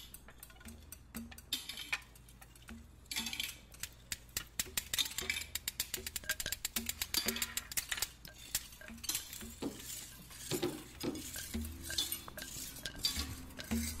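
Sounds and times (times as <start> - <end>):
sharp taps and knocks: 3.9 - 14.0.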